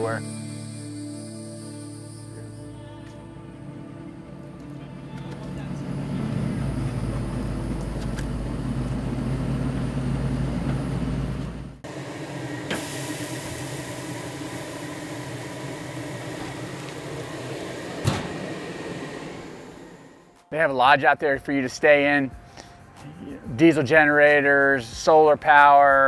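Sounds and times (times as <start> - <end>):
vehicle engine droning: 0.0 - 20.4
steaks sizzling on a grill: 12.8 - 17.2.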